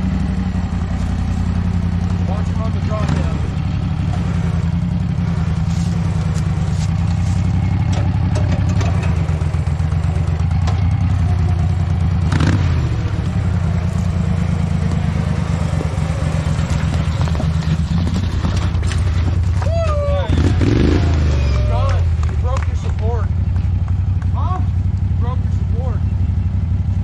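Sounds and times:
garden tractor engine running: 0:00.0 - 0:27.0
light clatter: 0:05.7 - 0:09.4.

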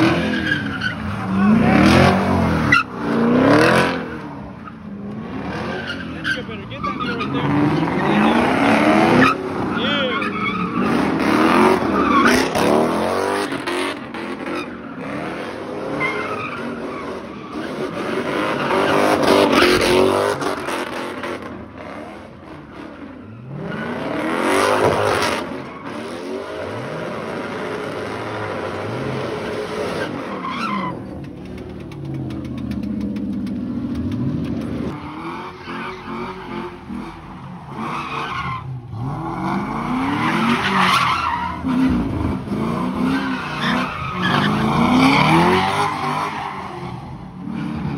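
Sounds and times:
tyre squeal: 0:00.0 - 0:01.6, 0:05.6 - 0:07.5, 0:09.1 - 0:10.9, 0:15.9 - 0:19.9, 0:29.9 - 0:31.4, 0:37.8 - 0:41.9, 0:43.0 - 0:47.2
car engines revving: 0:00.0 - 0:47.9.

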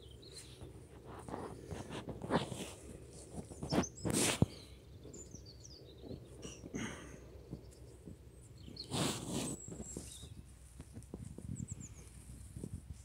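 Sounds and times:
rustling: 0:08.0 - 0:13.0.

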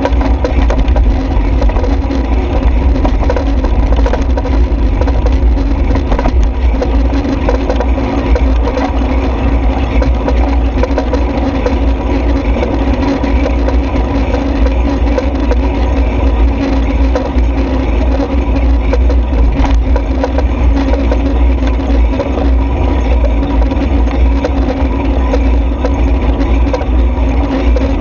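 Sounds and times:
wind buffeting microphone: 0:00.0 - 0:28.0.

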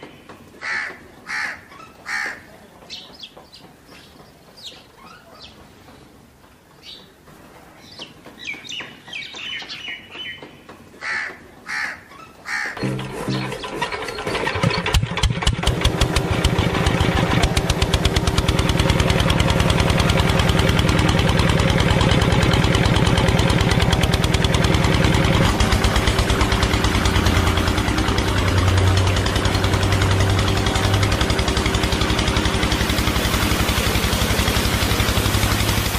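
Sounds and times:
diesel engine chugging: 0:12.6 - 0:35.9.

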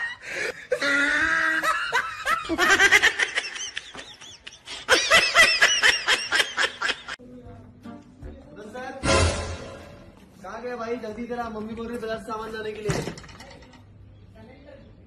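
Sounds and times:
person laughing: 0:00.0 - 0:07.2.

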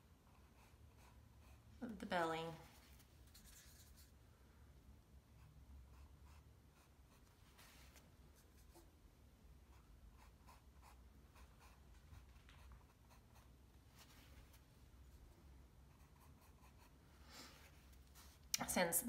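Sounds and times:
low room hum: 0:00.0 - 0:19.0
paintbrush scratchy strokes: 0:02.6 - 0:04.2.

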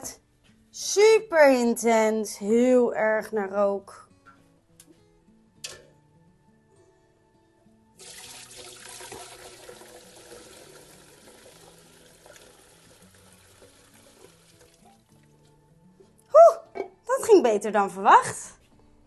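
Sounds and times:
quiet background music: 0:00.0 - 0:19.0
broth pouring and splashing: 0:08.0 - 0:15.4.

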